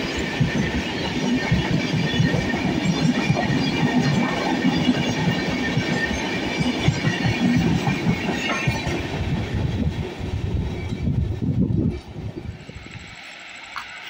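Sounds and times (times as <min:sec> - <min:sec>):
train wheels clattering over joints: 0:00.0 - 0:11.1.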